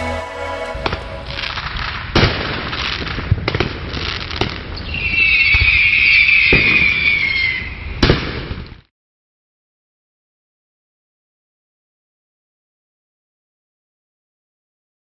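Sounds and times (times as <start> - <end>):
firework bangs: 0.7 - 8.8
high falling whistle: 4.8 - 7.8.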